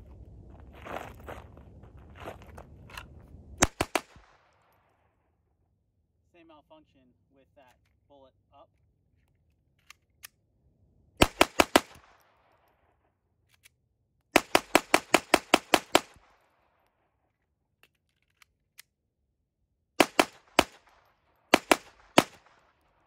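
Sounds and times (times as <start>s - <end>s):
pistol shots with echo: 3.6s - 4.8s, 11.2s - 12.9s, 14.4s - 16.8s, 20.0s - 23.0s.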